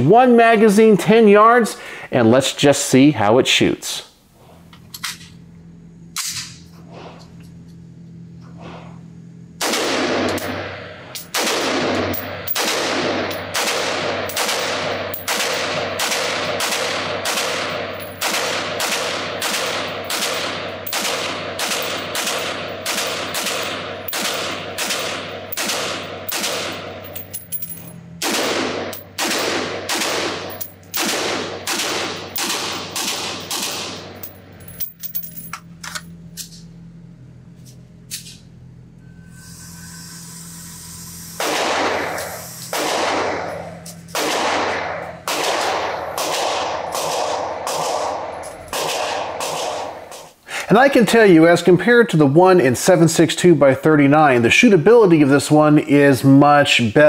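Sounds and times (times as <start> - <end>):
pistol shots echoing indoors: 9.6 - 26.9, 28.2 - 34.1, 41.4 - 50.2.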